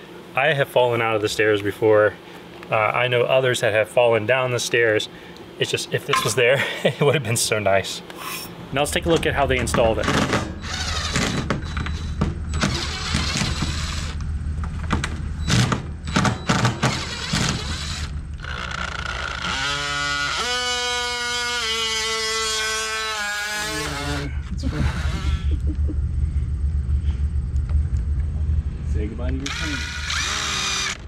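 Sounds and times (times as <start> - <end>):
cordless drill drilling: 10.1 - 14.2, 16.5 - 24.3, 29.4 - 31.0.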